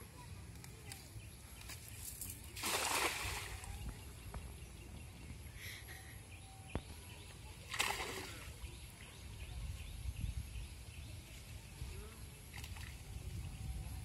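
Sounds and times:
water splash: 2.6 - 3.7, 7.6 - 8.6.

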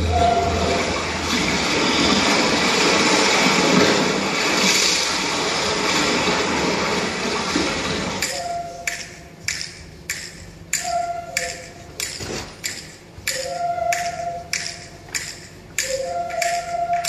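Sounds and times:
rushing water over loudspeakers: 0.0 - 8.9.

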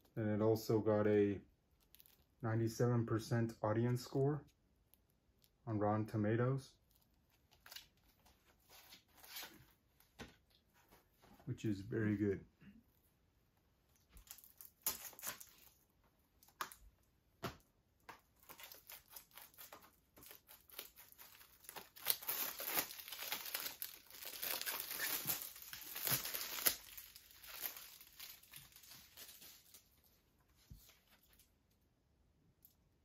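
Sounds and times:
plastic wrap crinkling: 1.7 - 2.4, 13.9 - 16.8, 18.1 - 30.2.

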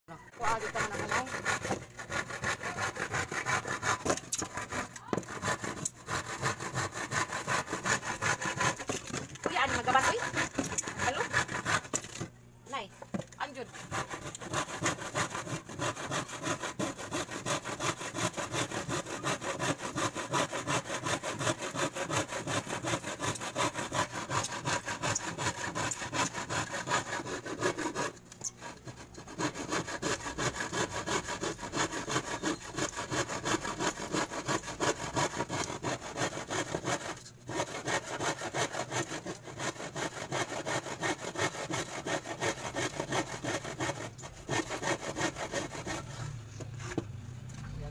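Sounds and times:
handsaw cutting plywood: 0.2 - 12.3, 13.1 - 47.1.

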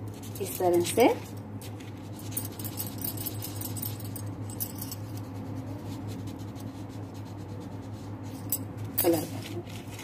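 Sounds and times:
steady low hum: 0.0 - 10.0
crayon scribbling on paper: 5.3 - 8.2.

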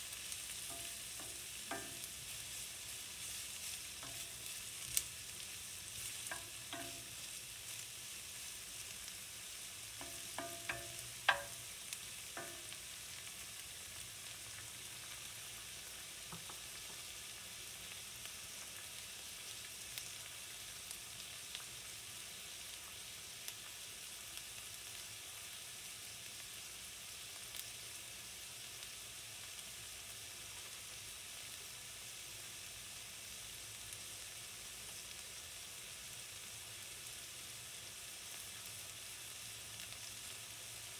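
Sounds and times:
onions sizzling in oil: 0.0 - 40.9.

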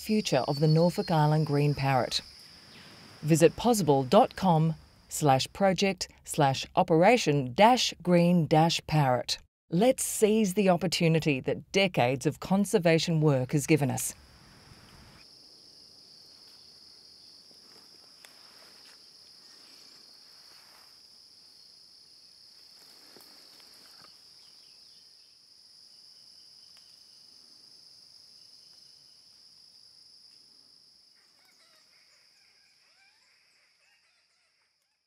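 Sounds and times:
high-pitched insect chorus: 0.0 - 5.3, 14.1 - 33.9.

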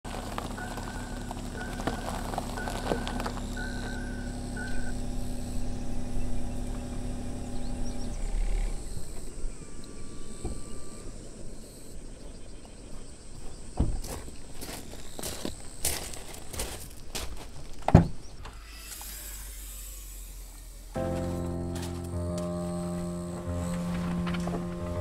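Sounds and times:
low droning tone: 0.1 - 8.8, 21.0 - 25.0.

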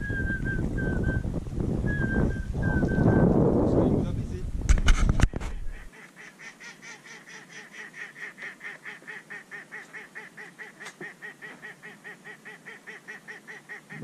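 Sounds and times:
waterfowl calling: 5.5 - 14.0.

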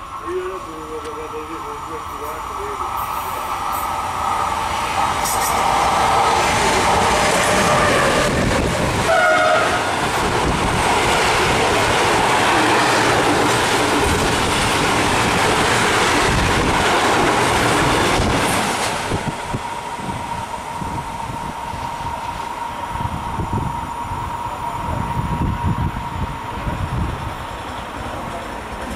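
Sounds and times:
train horn blast: 9.0 - 10.0.

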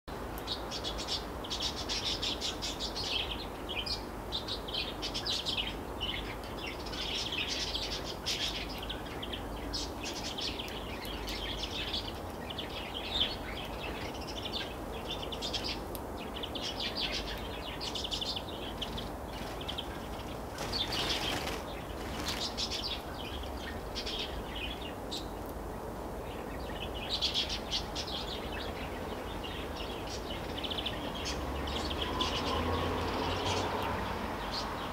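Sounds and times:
finches chirping and twittering: 0.4 - 25.3.

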